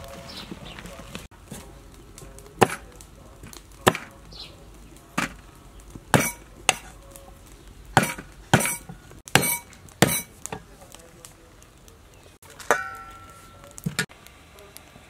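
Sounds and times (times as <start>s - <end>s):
cleaver chopping on wooden board: 2.6s - 2.8s, 3.8s - 4.1s, 6.1s - 6.9s, 8.0s - 10.3s.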